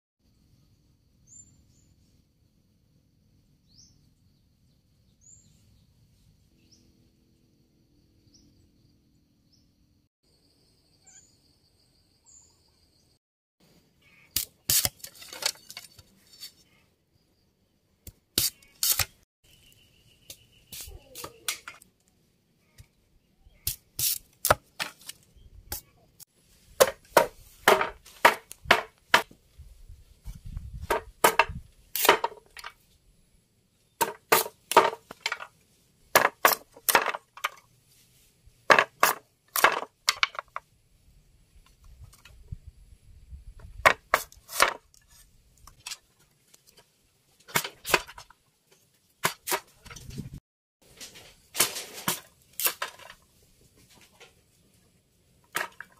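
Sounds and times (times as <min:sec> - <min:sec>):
bamboo splitting cracks: 0:14.3 - 0:16.1, 0:18.1 - 0:19.2, 0:23.7 - 0:25.3, 0:30.9 - 0:32.8, 0:34.0 - 0:35.5, 0:36.1 - 0:37.6, 0:38.7 - 0:40.6, 0:47.5 - 0:48.4, 0:51.0 - 0:53.2.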